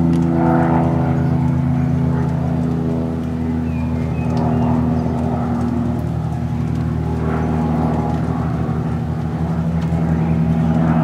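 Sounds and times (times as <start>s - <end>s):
light aircraft engine droning: 0.0s - 11.0s.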